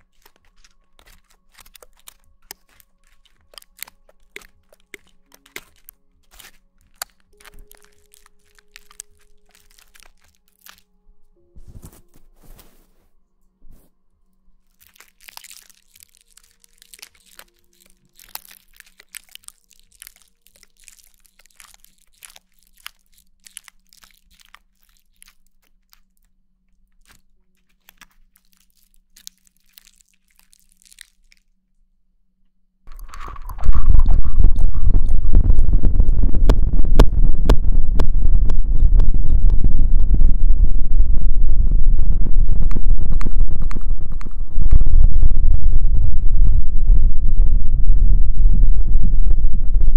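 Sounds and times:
crisp crackling and tapping: 0.0 - 10.9, 11.6 - 13.1, 14.6 - 31.5, 32.9 - 41.0, 42.3 - 46.3
microphone rubbing and scraping: 11.6 - 13.9, 32.9 - 49.9.

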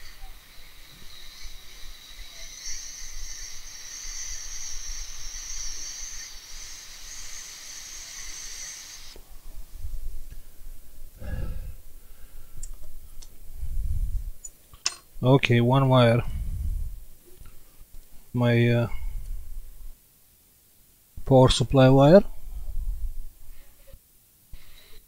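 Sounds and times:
hot air tool hissing: 0.0 - 9.2.

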